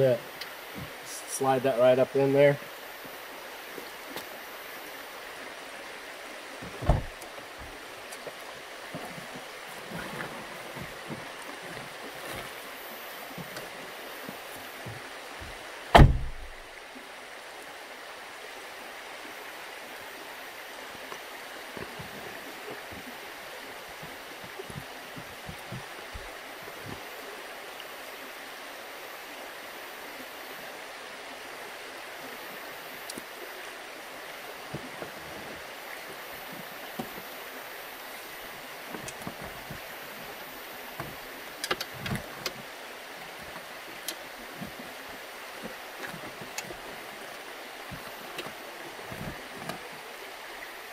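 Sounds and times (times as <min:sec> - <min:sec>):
creek running over rocks: 0:00.0 - 0:50.9
car door shutting: 0:06.6 - 0:08.3, 0:13.4 - 0:16.7, 0:41.0 - 0:42.7.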